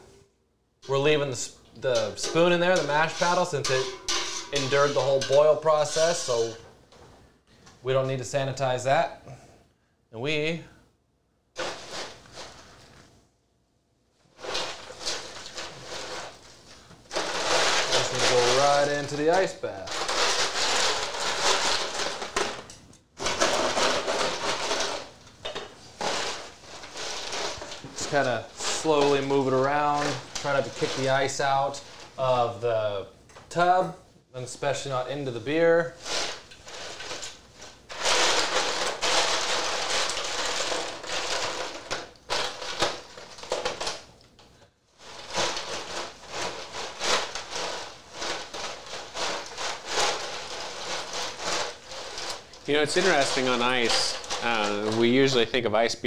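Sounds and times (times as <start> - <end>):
ice cubes clattering against metal pot: 0.8 - 6.6, 17.1 - 32.0, 36.0 - 44.0, 45.0 - 55.5.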